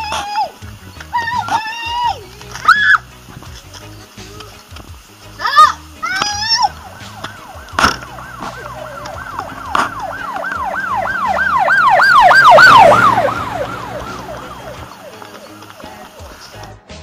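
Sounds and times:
siren yelping: 6.0 - 15.7.

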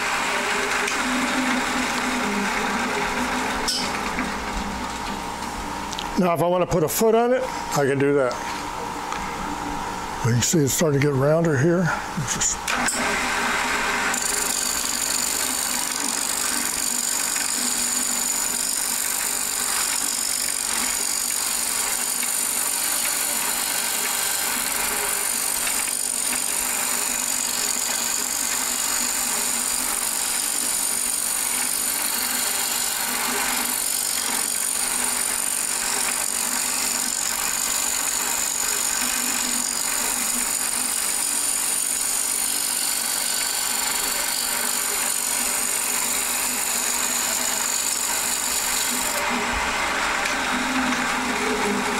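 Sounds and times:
wood lathe cutting hiss: 0.0 - 3.6, 12.3 - 51.9.

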